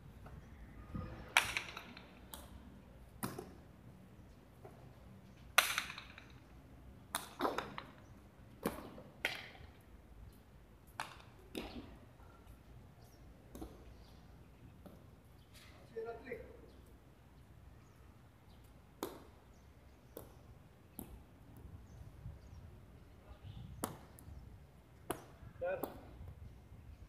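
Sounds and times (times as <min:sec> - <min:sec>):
hard ball striking wall and floor: 0:03.1 - 0:03.6, 0:19.0 - 0:19.4.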